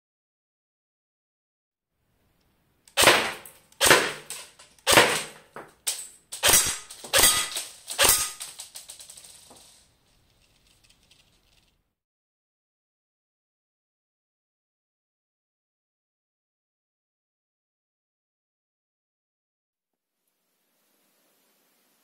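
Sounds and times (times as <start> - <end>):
airsoft gun shots: 3.0 - 5.6, 6.4 - 8.5
small clicks: 5.8 - 11.8.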